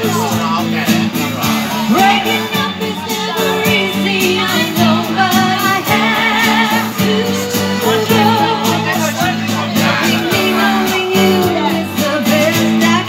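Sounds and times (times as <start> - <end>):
acoustic guitar: 0.0 - 13.0
woman singing with vibrato: 1.8 - 9.0, 9.8 - 13.0.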